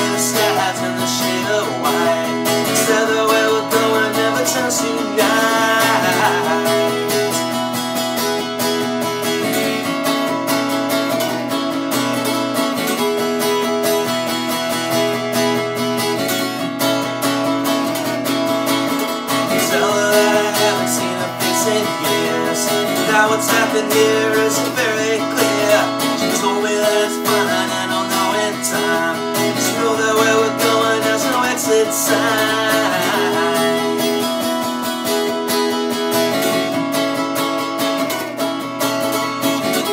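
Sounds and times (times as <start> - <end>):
man singing: 0.0 - 7.6, 19.3 - 34.9
acoustic guitar strumming: 0.0 - 39.9.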